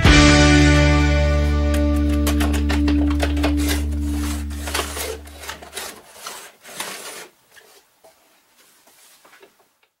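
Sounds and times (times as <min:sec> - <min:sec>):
jigsaw handling knocks: 0:01.7 - 0:07.3.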